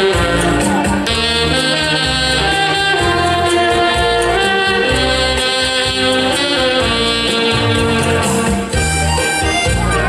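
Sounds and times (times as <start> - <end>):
saxophone ensemble playing folk tune: 0.0 - 10.0.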